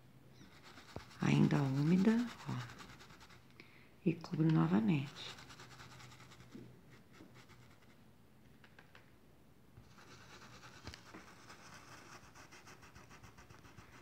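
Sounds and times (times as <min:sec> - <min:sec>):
paintbrush scrubbing fabric: 0:00.4 - 0:03.5, 0:04.6 - 0:07.9, 0:09.9 - 0:14.0.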